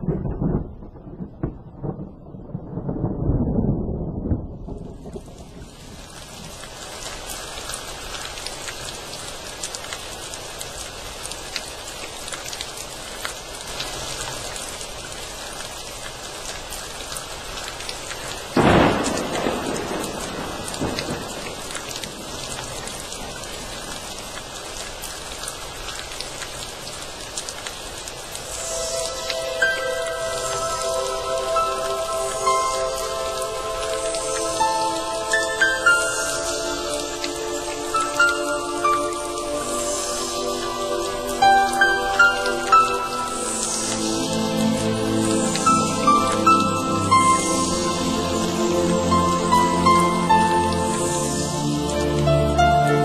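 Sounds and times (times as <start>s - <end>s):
thunderclap rumbling: 0.0s - 9.0s, 16.8s - 24.9s
steady rain falling: 0.0s - 53.0s.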